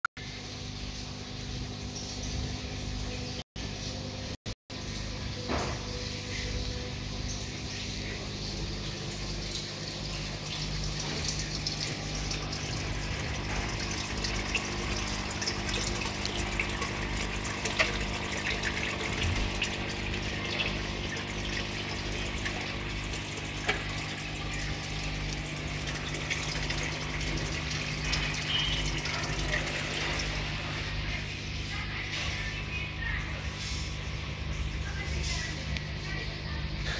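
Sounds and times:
pump humming: 0:00.2 - 0:36.9
water trickling and splashing: 0:07.2 - 0:32.5.

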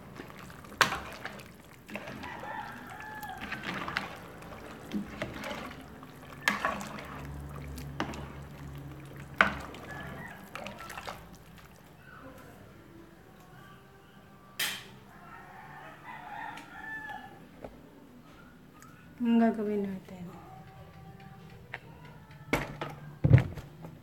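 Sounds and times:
spoon stirring water in pot: 0:00.0 - 0:12.0
rooster crowing: 0:01.9 - 0:06.2, 0:08.2 - 0:11.4, 0:15.0 - 0:17.6.

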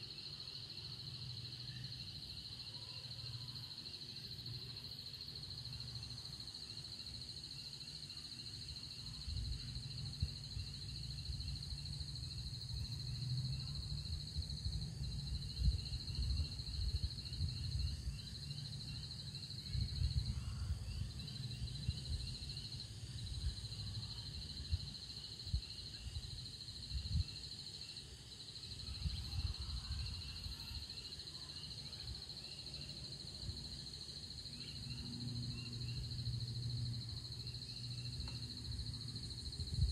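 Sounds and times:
insects chirring drone: 0:00.0 - 0:39.9
wind gusts on microphone: 0:13.8 - 0:18.2, 0:19.6 - 0:22.5, 0:24.6 - 0:27.4, 0:39.4 - 0:39.9.

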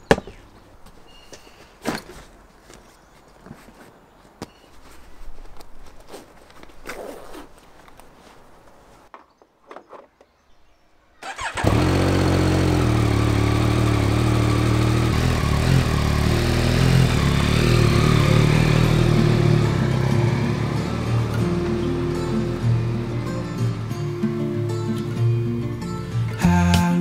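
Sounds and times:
faint rustles and clicks: 0:00.6 - 0:10.4
motorcycle engine idling: 0:11.2 - 0:23.9.

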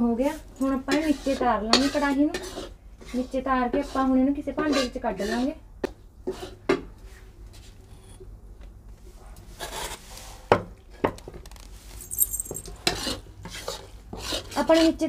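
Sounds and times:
light scrapes: 0:00.6 - 0:05.5
cloth rustling: 0:11.5 - 0:12.7.

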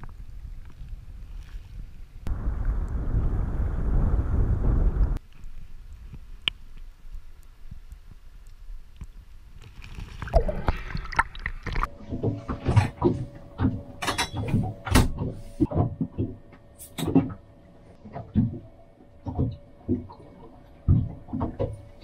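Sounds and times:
water and wind noise: 0:00.0 - 0:22.0
knocks and thuds in a boat cabin: 0:12.1 - 0:17.4, 0:18.1 - 0:18.6.

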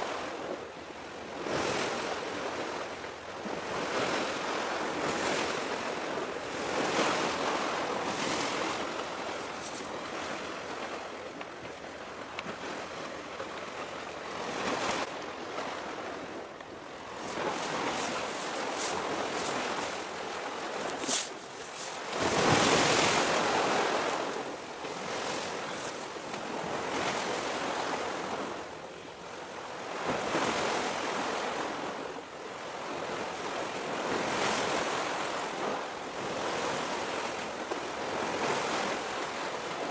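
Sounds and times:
sea waves washing: 0:00.0 - 0:39.9
wind noise: 0:14.3 - 0:28.4.

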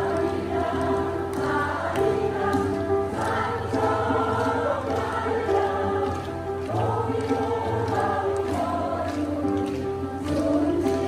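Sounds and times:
choir singing long held notes: 0:00.0 - 0:11.0.

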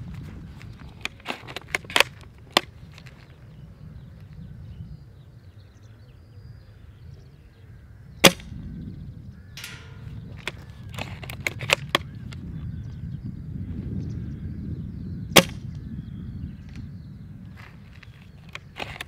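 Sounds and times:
wind rumbling on microphone: 0:00.0 - 0:19.0
airsoft rifle shot snap: 0:08.2 - 0:08.6, 0:15.4 - 0:15.6
short rattle: 0:09.6 - 0:12.0.

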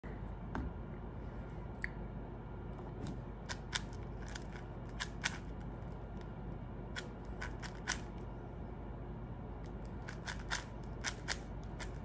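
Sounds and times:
speed cube clicking: 0:03.5 - 0:05.5, 0:07.0 - 0:08.2, 0:09.7 - 0:12.0.

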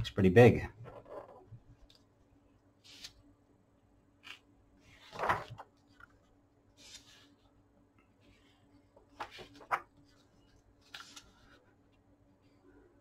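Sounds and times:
page turning: 0:04.2 - 0:06.2, 0:06.8 - 0:07.4, 0:09.1 - 0:11.6.

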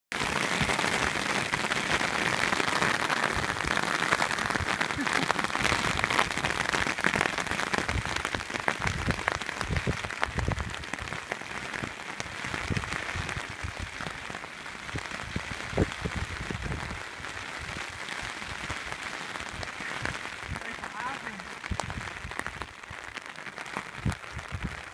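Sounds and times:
hailstones pattering on ground: 0:00.1 - 0:24.9
wind buffeting microphone: 0:07.8 - 0:23.1, 0:23.8 - 0:24.9.

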